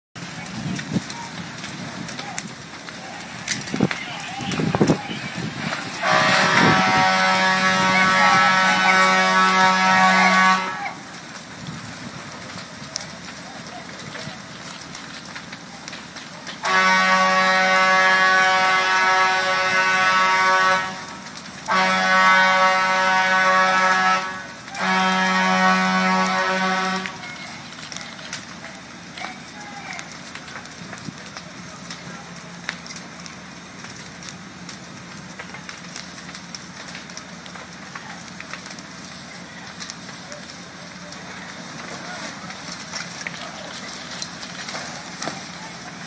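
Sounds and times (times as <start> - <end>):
burning house crackling: 0.2 - 46.0
fire popping: 0.2 - 46.0
fire rushing noise: 0.2 - 46.0
air horn blasts: 5.9 - 11.0, 16.6 - 27.2.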